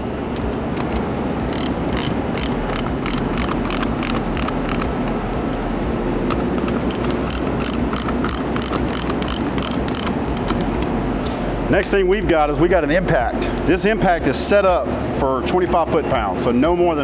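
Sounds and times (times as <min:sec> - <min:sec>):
steady background hum: 0:00.0 - 0:17.0
ratcheting wrench clicking: 0:00.3 - 0:05.7, 0:06.3 - 0:11.0.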